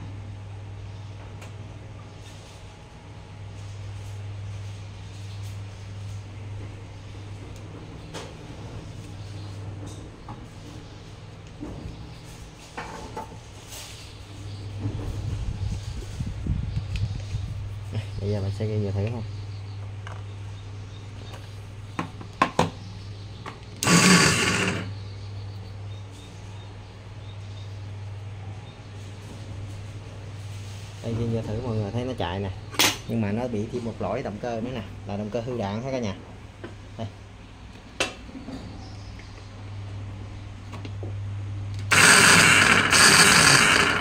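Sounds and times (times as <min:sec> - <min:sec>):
motor low hum: 0:00.0 - 0:32.7, 0:36.3 - 0:44.0
grass trimmer motor running: 0:23.8 - 0:24.9, 0:41.8 - 0:44.0.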